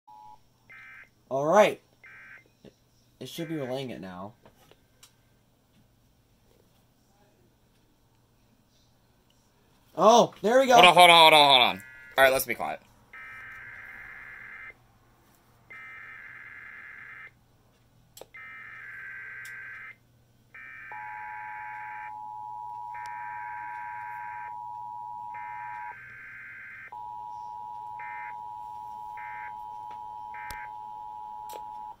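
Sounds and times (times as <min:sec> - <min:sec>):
screechy digital data bursts: 0:11.7 - 0:12.6
two-tone attention signal: 0:20.9 - 0:25.9, 0:27.0 - 0:32.0.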